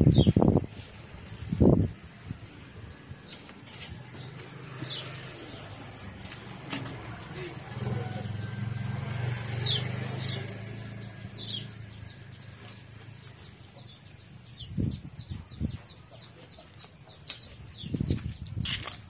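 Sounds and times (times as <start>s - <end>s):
chickens peeping: 12.3s - 18.7s.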